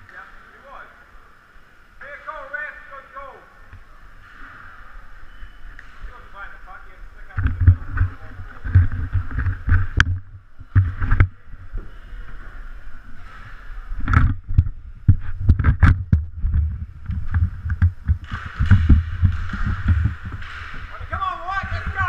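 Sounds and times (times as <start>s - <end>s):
low uneven camera rumble: 0.0s - 22.0s
sharp clacks and knocks: 13.2s - 22.0s.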